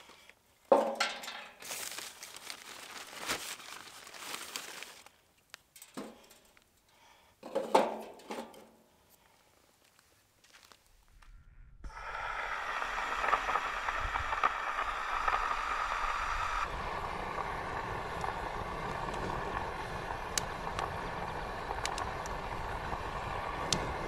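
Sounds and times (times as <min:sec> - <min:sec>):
wood crackling: 0:00.0 - 0:07.2, 0:09.2 - 0:24.0
gas burner hissing: 0:11.7 - 0:24.0.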